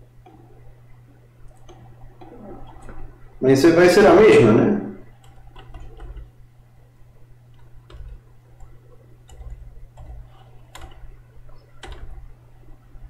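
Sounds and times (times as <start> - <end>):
steady low hum: 0.0 - 13.0
keyboard and mouse clicks: 0.2 - 0.6, 1.5 - 3.1, 5.2 - 6.4, 7.5 - 12.3.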